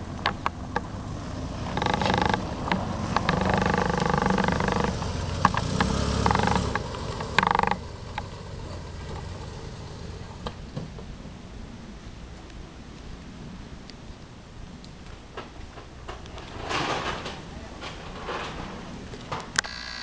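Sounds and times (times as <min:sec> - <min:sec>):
scattered clicks: 0:00.2 - 0:00.9, 0:01.6 - 0:08.4
tripod head squealing: 0:01.7 - 0:02.4, 0:03.2 - 0:05.1.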